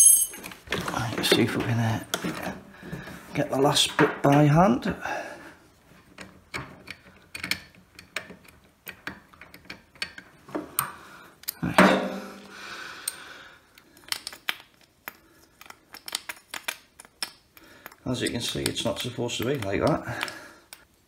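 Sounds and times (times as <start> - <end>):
small metal clicks and taps: 6.2 - 11.6, 13.8 - 20.9.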